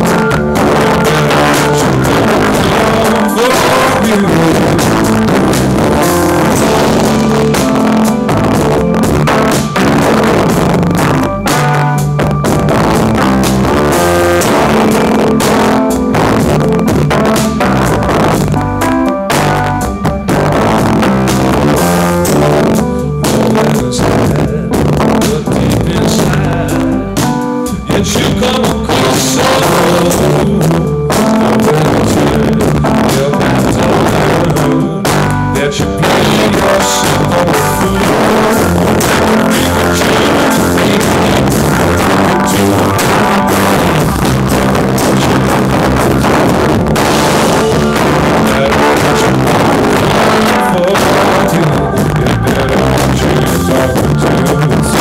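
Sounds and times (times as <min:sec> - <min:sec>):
drum kit: 0:00.0 - 0:55.0
electric guitars: 0:00.0 - 0:55.0
live rock band playing: 0:00.0 - 0:55.0.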